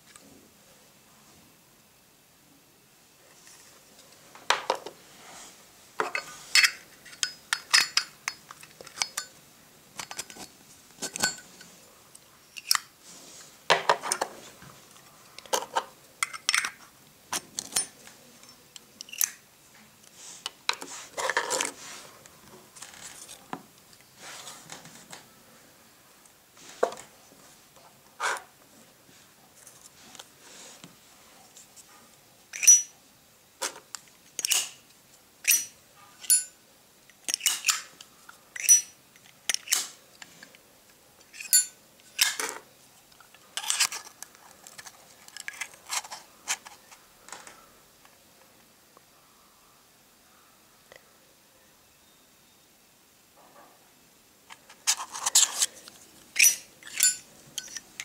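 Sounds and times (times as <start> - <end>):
metal lighter cases rubbing: 54.8 - 58.0.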